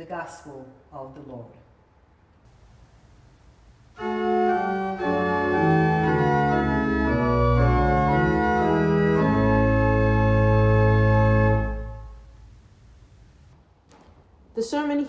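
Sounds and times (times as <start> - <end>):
church organ chords: 2.5 - 13.5.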